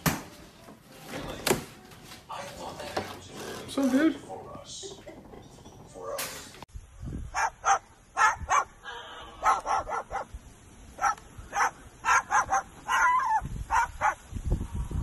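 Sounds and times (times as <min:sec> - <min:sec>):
cockatoo barking: 0:07.3 - 0:14.3.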